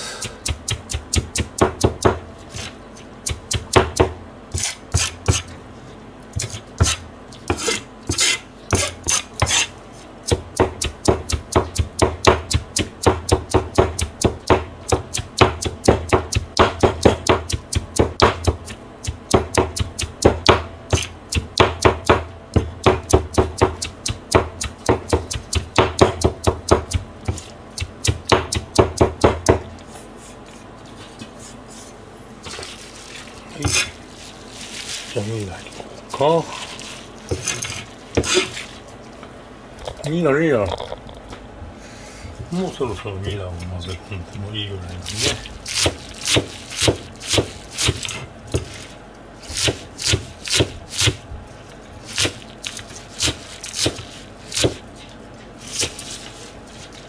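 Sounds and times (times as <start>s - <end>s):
cleaver chopping on plastic board: 0.2s - 2.2s, 10.3s - 29.6s, 38.2s - 38.5s, 45.7s - 48.8s, 49.5s - 51.2s, 53.2s - 54.8s.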